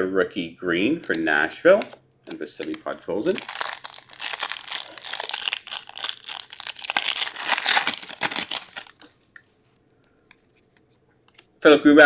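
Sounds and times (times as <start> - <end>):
cards being handled: 1.1 - 9.2
foil wrapper crinkling and tearing: 2.6 - 9.1.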